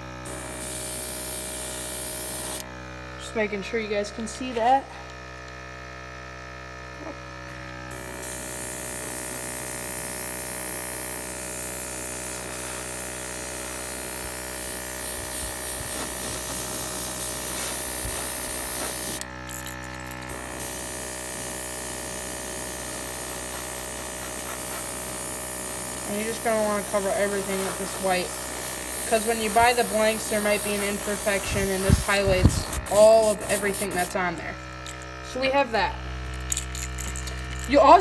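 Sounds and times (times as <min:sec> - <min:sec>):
compressor humming: 0:00.0 - 0:38.0
airbrush spray hiss: 0:11.0 - 0:19.3, 0:20.3 - 0:34.2.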